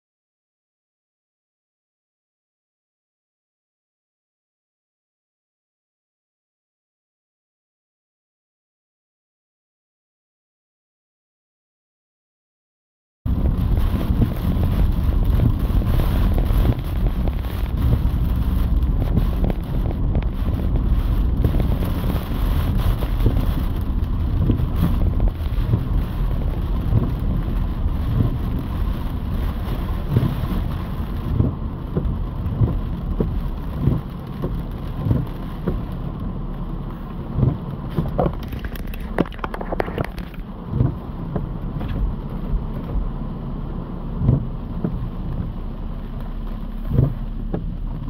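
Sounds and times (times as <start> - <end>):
car and road rumble: 13.3 - 48.0
heavy rain on car roof: 13.3 - 48.0.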